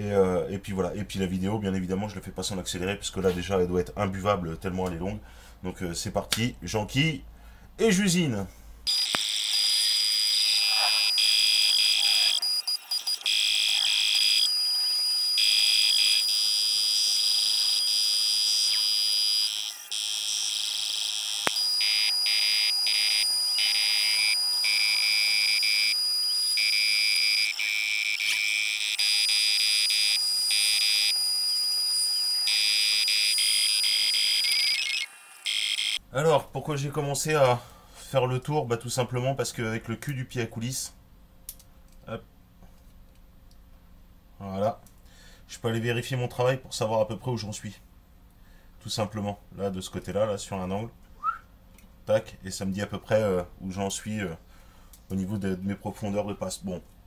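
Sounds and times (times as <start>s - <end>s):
sped-up lathe whine: 8.9s - 36.0s.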